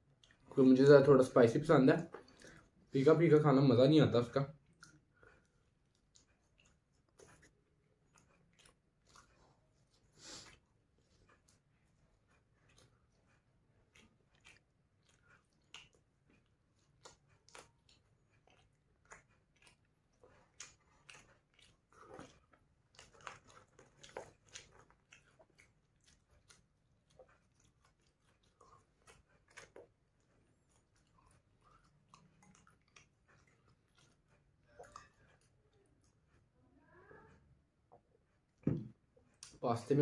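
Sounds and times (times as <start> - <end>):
person biting and chewing: 12.3 - 35.5.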